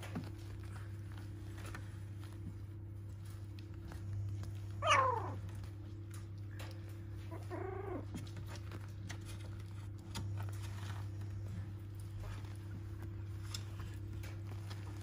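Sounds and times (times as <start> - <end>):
paws scratching and pattering: 0.0 - 15.0
puppy whine: 4.7 - 5.6, 7.2 - 8.6
puppies whimpering: 4.8 - 5.4, 7.2 - 8.2
puppy yelp: 4.8 - 5.4, 7.3 - 8.2.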